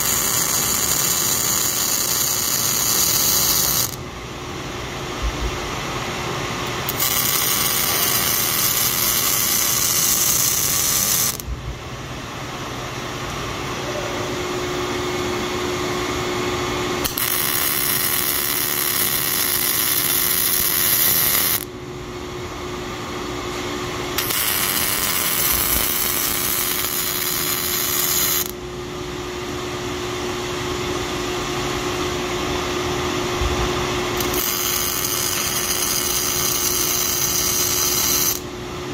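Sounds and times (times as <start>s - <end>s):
welding arc crackling hiss: 0.0s - 4.0s, 6.9s - 11.4s, 17.0s - 21.7s, 24.2s - 28.6s, 34.2s - 38.4s
steady machine hum: 0.0s - 38.9s.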